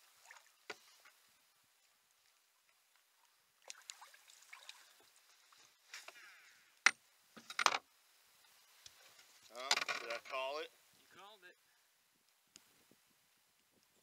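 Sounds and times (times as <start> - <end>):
water splashing: 0.0 - 5.9.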